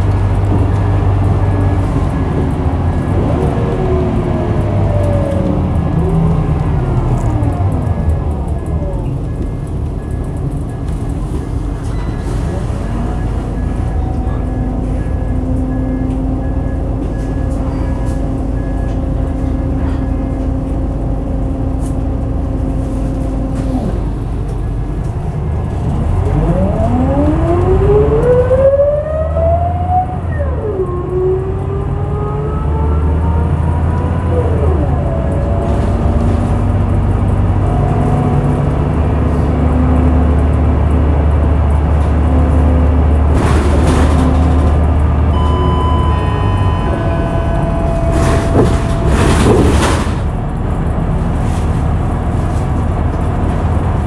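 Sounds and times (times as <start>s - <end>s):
bus engine idling: 0.0s - 26.4s, 33.4s - 54.0s
gearbox whine: 44.1s - 51.1s.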